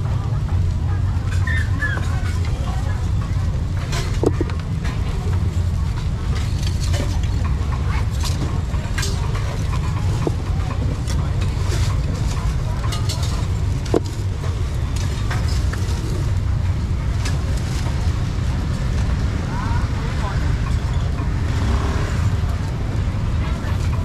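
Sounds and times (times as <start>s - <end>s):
low traffic rumble: 0.0s - 24.0s
clinks and knocks: 2.0s - 16.6s.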